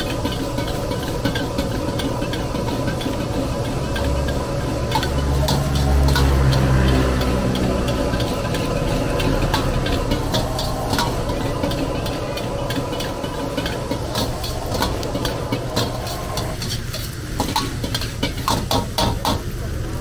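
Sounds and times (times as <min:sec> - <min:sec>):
metal ladle scraping wok: 0:00.0 - 0:19.6
gas burner hum: 0:00.0 - 0:20.0
vegetables hissing in hot pan: 0:00.0 - 0:20.0.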